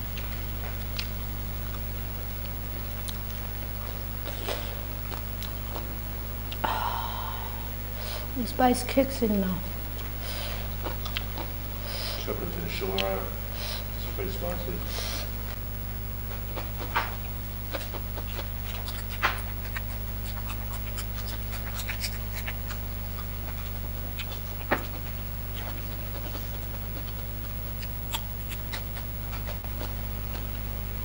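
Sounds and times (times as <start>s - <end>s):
steady low hum: 0.0s - 31.0s
chewing and mouth smacks: 0.1s - 6.6s, 9.9s - 11.6s, 12.8s - 13.2s, 16.2s - 30.7s
hands picking at food clicks: 10.8s - 11.5s, 12.9s - 13.2s.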